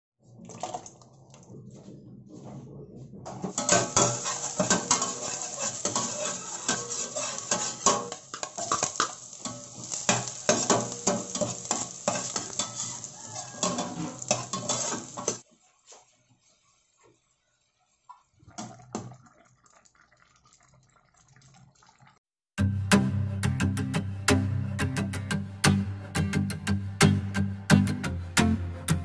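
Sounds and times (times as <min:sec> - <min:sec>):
spatula scraping metal pot: 0:03.3 - 0:15.4
onions sizzling in oil: 0:03.5 - 0:17.0.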